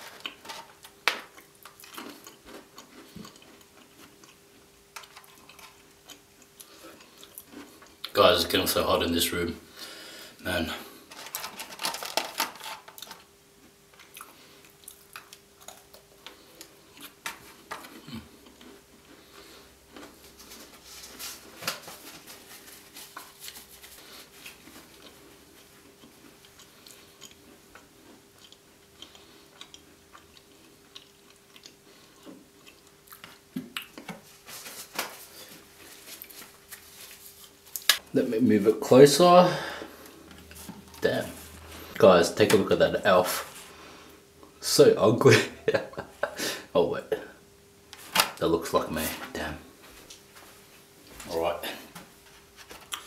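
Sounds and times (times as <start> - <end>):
crisp chewing crunches: 0.0 - 8.1, 22.7 - 34.1
faint steady hum: 0.0 - 53.0.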